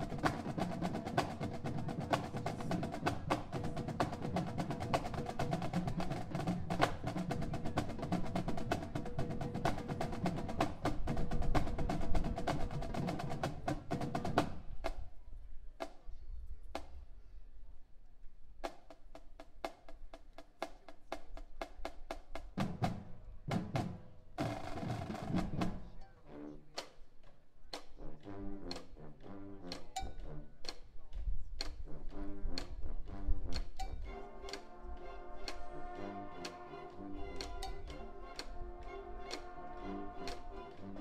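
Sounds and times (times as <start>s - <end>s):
drum-line beat: 0.0s - 15.0s, 18.6s - 25.9s
brass and saxophones: 25.6s - 27.0s, 28.0s - 30.9s, 31.8s - 41.0s.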